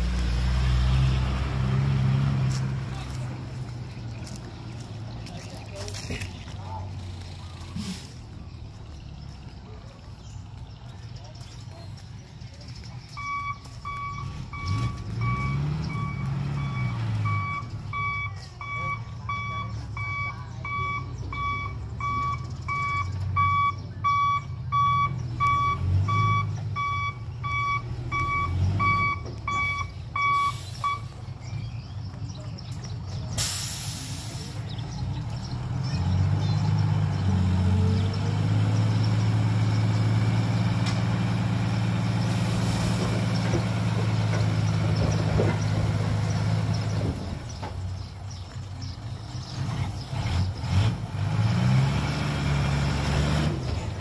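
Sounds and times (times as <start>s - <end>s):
diesel engine running: 0.0s - 54.0s
truck backup beeper: 13.1s - 31.4s
air brake hiss: 33.4s - 34.6s.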